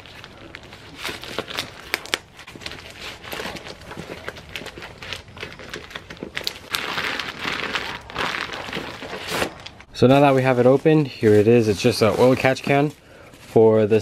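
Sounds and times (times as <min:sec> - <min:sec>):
plastic bag crinkling and tearing: 0:00.0 - 0:13.0.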